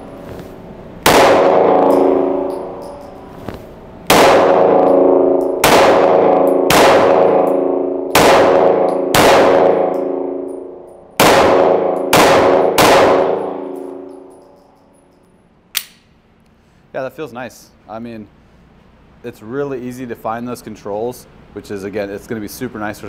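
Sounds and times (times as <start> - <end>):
pistol shots with ringing echo: 1.0 - 3.2, 4.0 - 14.6.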